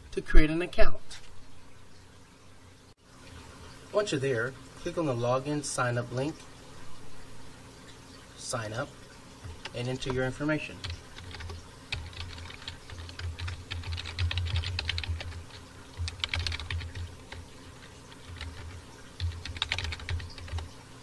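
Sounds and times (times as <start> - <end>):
computer keyboard typing: 9.4 - 20.7.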